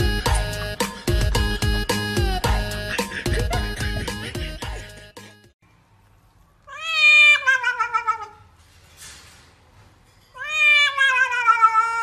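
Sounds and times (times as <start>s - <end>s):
cat yowling: 6.7s - 8.4s, 10.4s - 12.0s.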